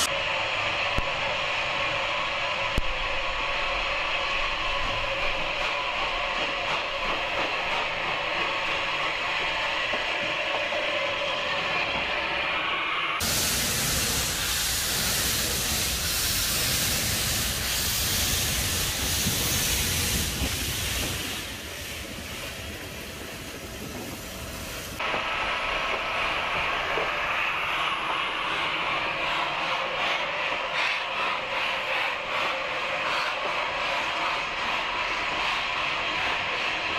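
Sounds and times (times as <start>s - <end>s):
loud rush of escaping steam: 0.0s - 36.9s
steam hissing from locomotive: 0.0s - 36.9s.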